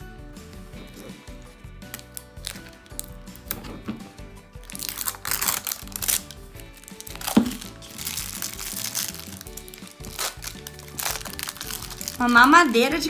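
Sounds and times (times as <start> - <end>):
background music: 0.0 - 13.0
plastic wrapping crinkling: 1.9 - 3.7, 4.6 - 13.0
sharp plastic crack: 4.6 - 12.2.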